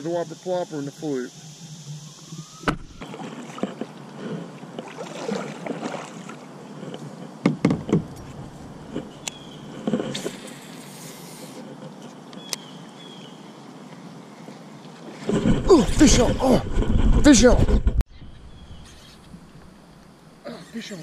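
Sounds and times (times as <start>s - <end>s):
steady background hiss: 0.0s - 15.4s, 18.1s - 21.0s
fishing gear knocking on canoe hull: 7.4s - 9.1s.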